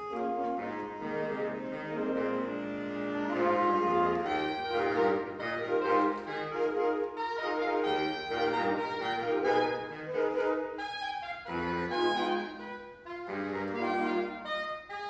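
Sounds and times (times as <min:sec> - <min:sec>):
saxophone ensemble playing chords: 0:00.0 - 0:15.0.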